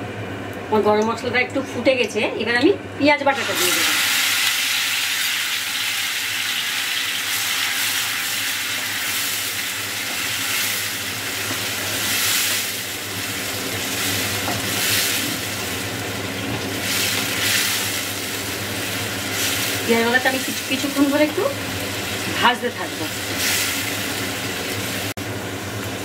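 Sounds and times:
onion paste sizzling in oil: 0:03.4 - 0:26.0.

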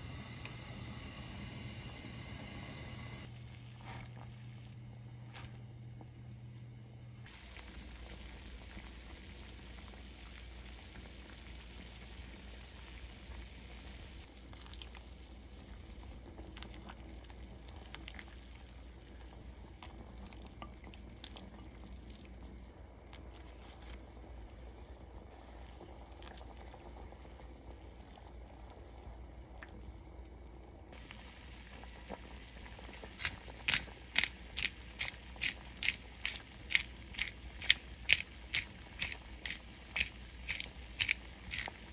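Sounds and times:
soup bubbling at a boil: 0:07.2 - 0:41.9
sharp crunchy clicks: 0:33.0 - 0:41.8.

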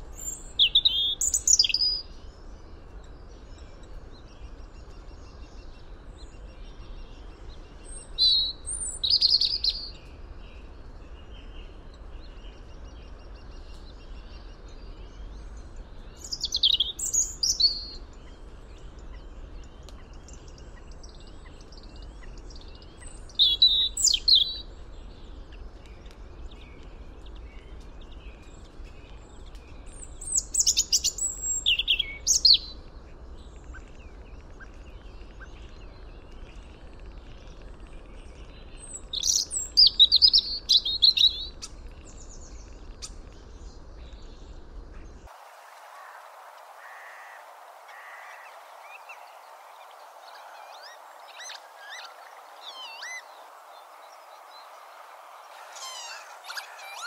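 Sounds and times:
low background hiss: 0:00.0 - 0:57.0
bird singing high phrases: 0:00.1 - 0:02.1, 0:07.9 - 0:10.0, 0:16.2 - 0:18.4, 0:20.0 - 0:24.7, 0:29.9 - 0:32.8, 0:38.5 - 0:41.7, 0:46.8 - 0:57.0.

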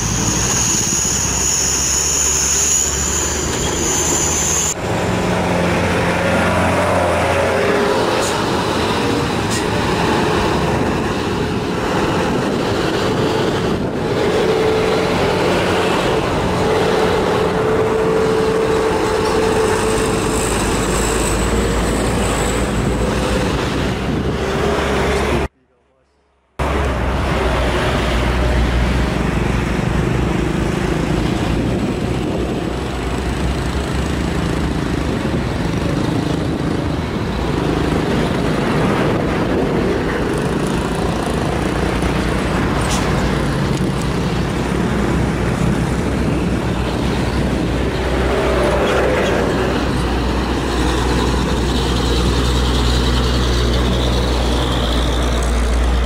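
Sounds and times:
passing cars and motorbikes: 0:00.0 - 0:25.5, 0:26.6 - 0:56.0
diesel trucks climbing under load: 0:26.6 - 0:56.0.

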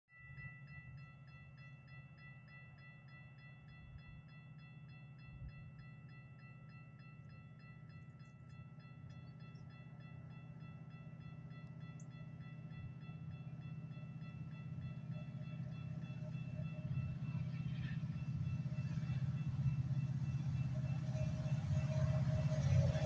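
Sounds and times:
crossing warning bell ringing: 0:00.1 - 0:23.0
train rumble: 0:07.0 - 0:23.0.

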